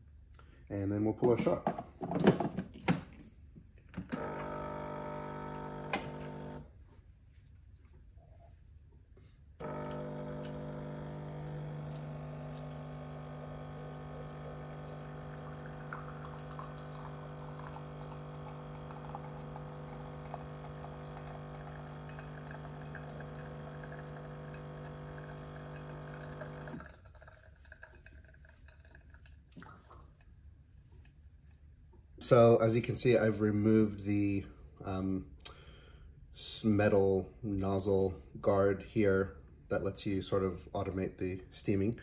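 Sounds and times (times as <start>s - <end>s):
espresso pump humming: 4.1s - 6.7s, 9.6s - 29.0s
espresso trickling into glass: 9.6s - 29.4s.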